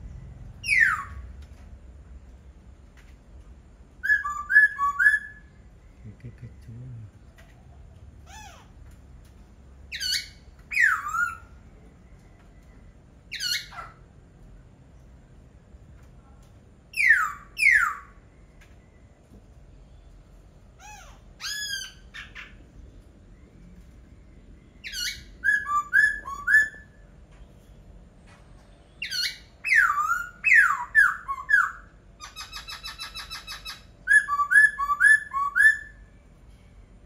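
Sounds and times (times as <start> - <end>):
bird singing whistled phrases: 0.5 - 1.2, 4.0 - 5.6, 10.0 - 11.6, 16.9 - 18.2, 24.8 - 27.0, 28.9 - 36.1.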